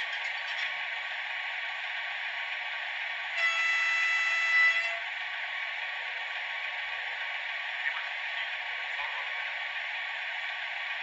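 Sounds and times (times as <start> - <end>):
model locomotive diesel engine sound: 0.0 - 11.0
locomotive horn blast: 3.4 - 5.2.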